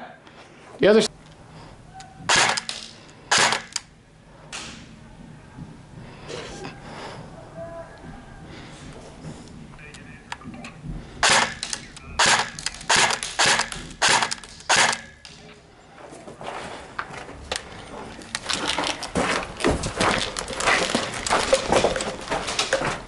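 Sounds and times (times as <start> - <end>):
airsoft rifle shots: 2.3 - 3.8, 11.2 - 15.4
footsteps on gravel: 15.5 - 23.0.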